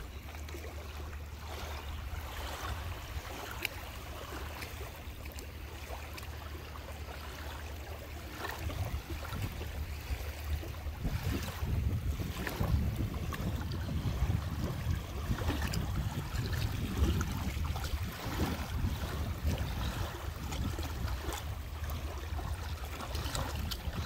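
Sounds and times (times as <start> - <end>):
small waves lapping: 0.0 - 24.0
wind rumble on microphone: 7.3 - 24.0.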